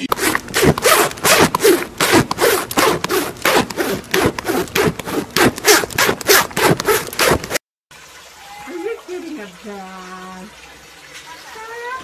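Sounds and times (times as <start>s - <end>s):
horse hair rasping on fabric: 0.0s - 7.6s.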